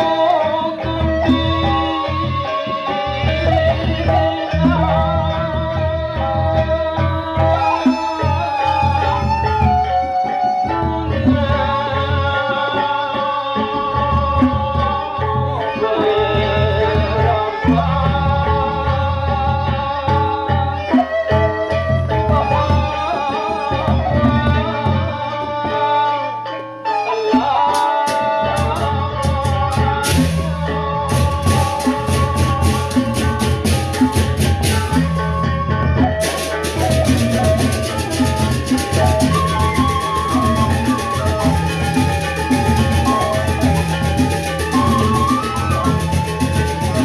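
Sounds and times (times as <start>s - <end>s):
bamboo flute melody: 0.0s - 47.0s
deep drums: 28.5s - 47.0s.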